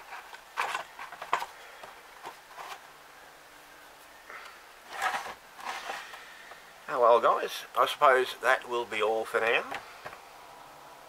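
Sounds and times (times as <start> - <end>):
plastic clicks and rustles: 0.0 - 2.8.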